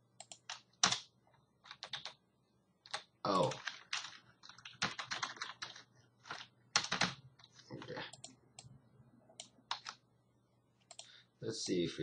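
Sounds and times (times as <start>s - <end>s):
computer keyboard typing: 0.2s - 2.2s, 2.8s - 8.7s, 9.4s - 10.0s, 10.9s - 11.1s.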